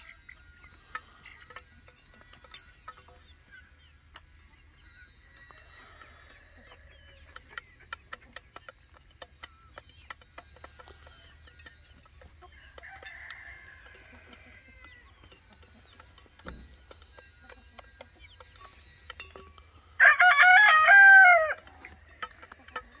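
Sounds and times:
chickens pecking at feed: 0:00.0 - 0:23.0
rooster crowing: 0:05.3 - 0:07.1, 0:12.5 - 0:15.0, 0:20.0 - 0:21.7.

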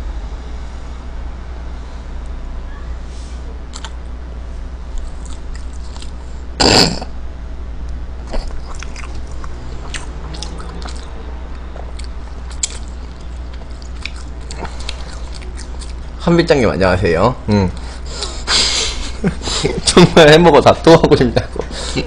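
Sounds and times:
low hum: 0:00.0 - 0:22.0
person chewing: 0:03.7 - 0:04.1, 0:04.9 - 0:07.1, 0:08.2 - 0:16.2.

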